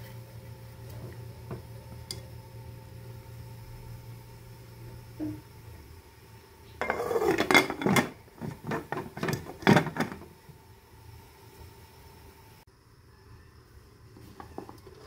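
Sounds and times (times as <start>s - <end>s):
pot lid scraping and clattering: 6.8s - 10.3s.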